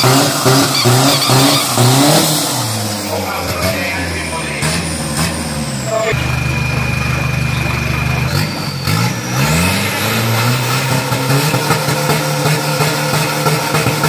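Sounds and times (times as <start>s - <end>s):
turbo whistle: 0.0s - 2.7s
diesel engine revving: 0.0s - 14.0s.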